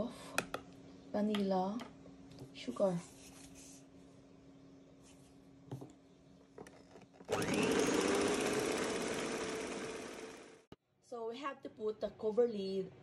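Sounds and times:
electric hand mixer whirring: 7.3 - 10.7.

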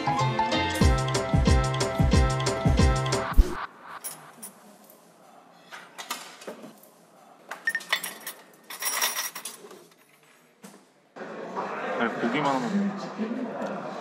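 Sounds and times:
cutlery clinking on metal trays: 7.5 - 10.6.

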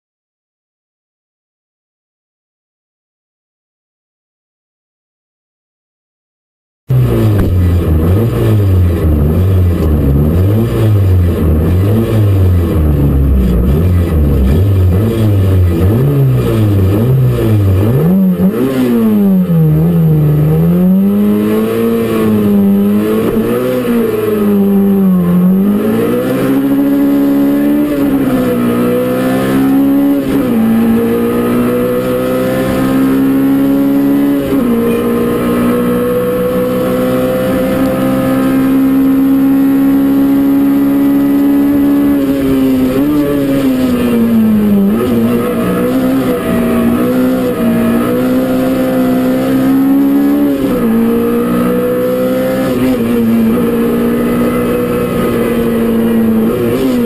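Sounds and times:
car engine revving: 6.9 - 57.0.

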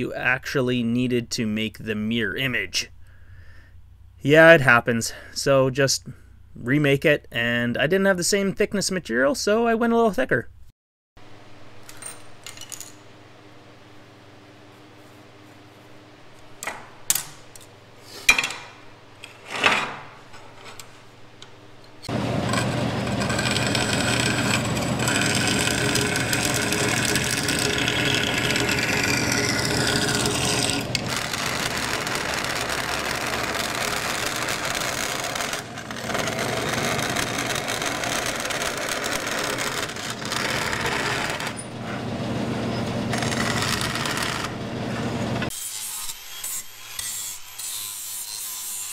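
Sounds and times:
band saw cutting aluminum: 22.0 - 48.9.

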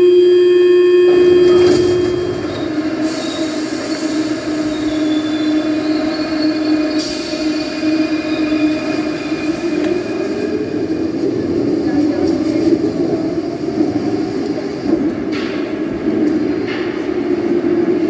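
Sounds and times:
held tone: 0.0 - 3.6
train rumbling: 0.0 - 18.0
wheels squealing: 1.6 - 11.4.

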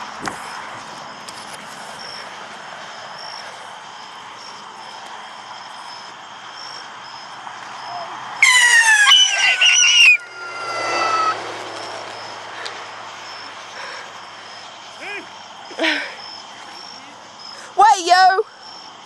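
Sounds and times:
whistling firework: 8.4 - 11.4.

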